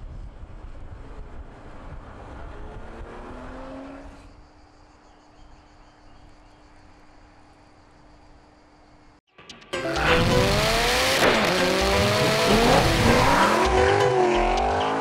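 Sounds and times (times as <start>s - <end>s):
car engine and road noise: 0.0s - 5.0s, 9.7s - 15.0s
insects chirring: 4.0s - 9.2s.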